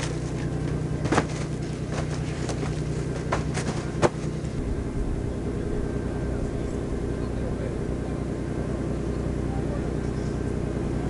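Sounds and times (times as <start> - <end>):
engine droning: 0.0 - 11.0
sharp knocks: 1.0 - 4.3.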